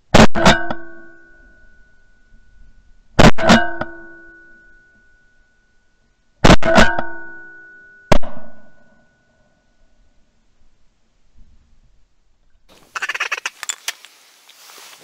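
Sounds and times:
metallic ringing: 0.6 - 6.2, 6.9 - 10.0.

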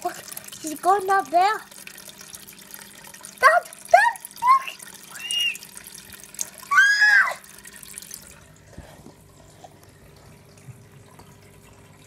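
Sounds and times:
water trickling: 0.0 - 12.0
child calling out: 3.4 - 5.6, 6.7 - 7.4.

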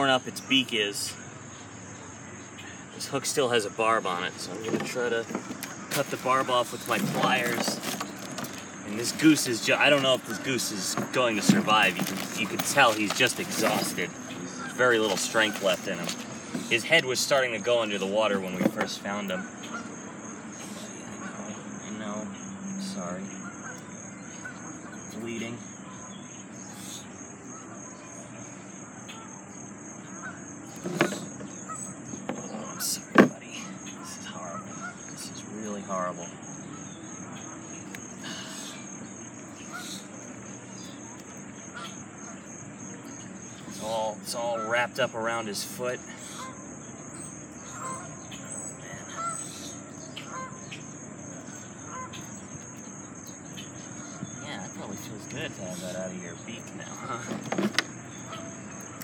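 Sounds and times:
insects trilling: 0.0 - 59.0
handling rustling and clicks: 4.6 - 14.4, 15.0 - 16.7
short bird calls: 22.9 - 44.2, 45.5 - 56.1.

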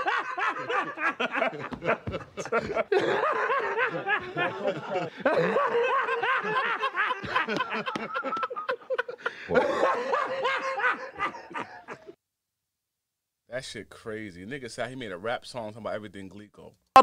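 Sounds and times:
men laughing: 0.0 - 12.2.

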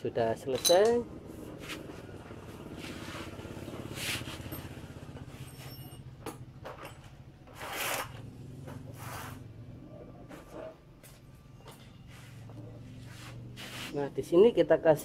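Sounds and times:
engine idling: 1.0 - 7.5.

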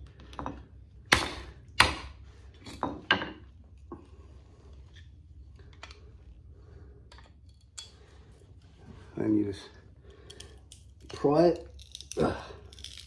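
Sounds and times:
faint clinks and scrapes: 7.0 - 13.0.

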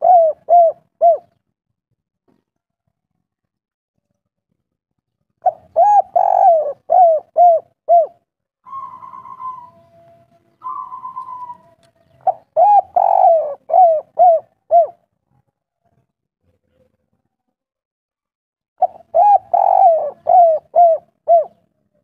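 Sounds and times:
dove cooing: 0.0 - 1.4, 5.4 - 15.0, 18.8 - 21.7
dove purring notes: 0.0 - 1.4, 5.4 - 15.0, 18.8 - 21.6.

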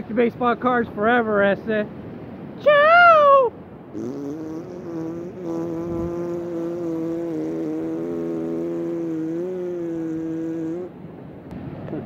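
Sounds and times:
man blowing a raspberry: 3.9 - 11.0.

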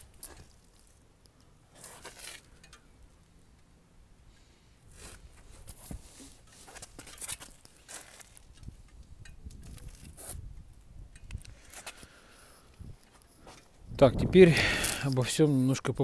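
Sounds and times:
faint rustles and scuffs: 4.9 - 8.8.

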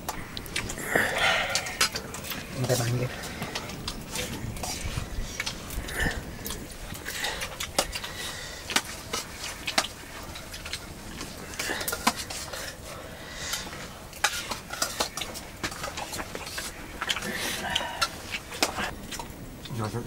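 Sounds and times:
metal dishes clinking and scraping: 13.5 - 18.9.

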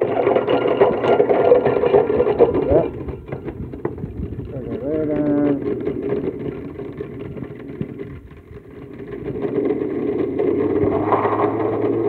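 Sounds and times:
blender motor crushing ice: 8.8 - 12.0.

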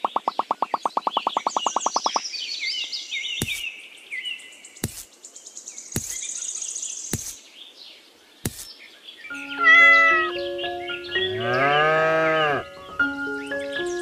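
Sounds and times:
bird-like chirping: 0.0 - 7.6, 8.4 - 11.8.

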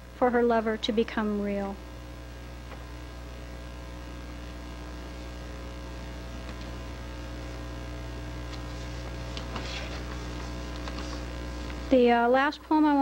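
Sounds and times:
electrical mains hum: 0.0 - 13.0
faint soft rustles: 8.5 - 11.9.

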